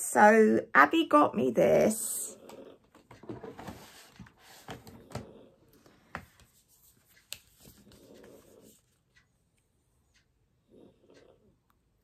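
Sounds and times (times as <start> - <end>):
soft rustling: 6.2 - 9.2.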